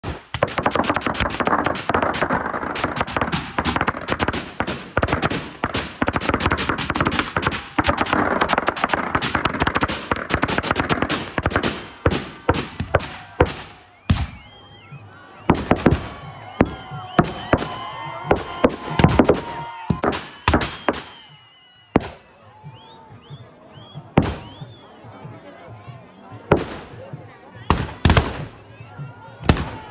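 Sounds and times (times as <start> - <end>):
firecrackers crackling and banging: 0.0 - 14.5, 15.5 - 21.4, 26.5 - 28.6.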